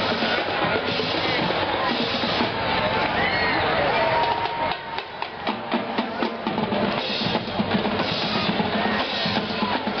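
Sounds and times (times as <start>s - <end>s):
parade drums: 0.0s - 10.0s
snare drum beating: 4.2s - 10.0s.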